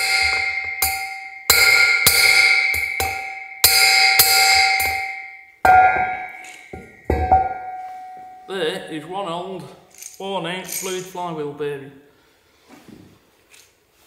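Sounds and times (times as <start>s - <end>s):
hammer striking metal drift: 0.0s - 8.5s
metallic ringing: 0.0s - 9.0s.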